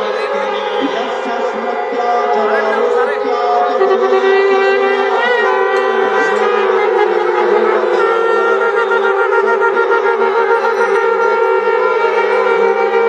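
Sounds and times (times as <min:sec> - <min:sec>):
conch shells blowing: 0:03.9 - 0:13.0.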